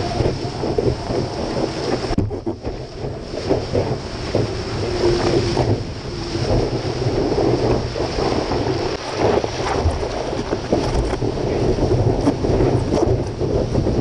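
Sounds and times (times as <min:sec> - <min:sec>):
water rushing and spraying: 0:00.0 - 0:14.0
wind buffeting microphone: 0:00.0 - 0:14.0.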